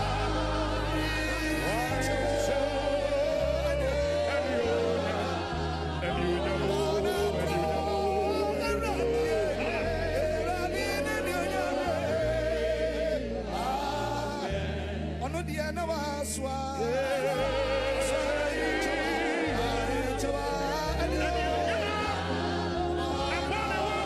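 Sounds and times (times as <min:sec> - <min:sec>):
man singing into microphone: 0:00.0 - 0:05.4
band playing gospel music: 0:00.0 - 0:24.0
congregation singing along: 0:00.0 - 0:24.0.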